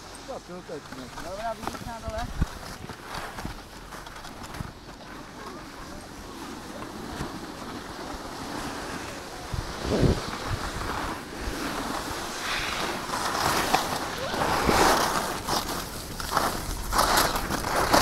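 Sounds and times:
skis scraping over snow: 0:00.0 - 0:18.0
wind rushing over microphone: 0:08.7 - 0:17.0.

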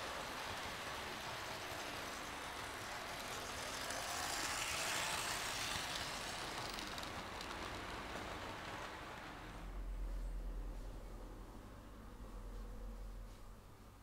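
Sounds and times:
model train rattling past: 0:00.0 - 0:09.8.

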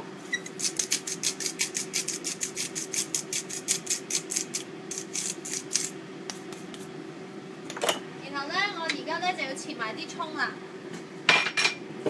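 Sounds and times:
steady low hum: 0:00.0 - 0:12.0
salt grinder grating clicks: 0:00.6 - 0:05.9.

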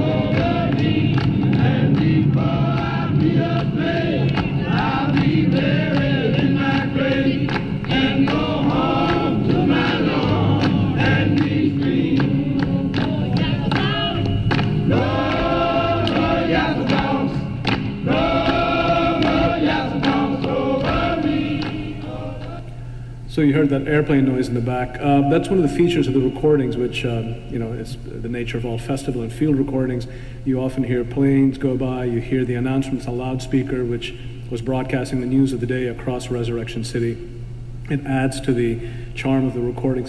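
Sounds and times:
group of people singing: 0:00.0 - 0:22.9.

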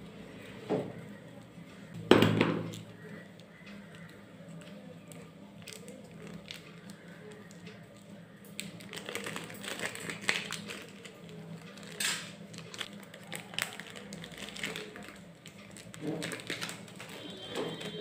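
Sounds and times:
plastic wrapper crinkling: 0:05.1 - 0:18.0.

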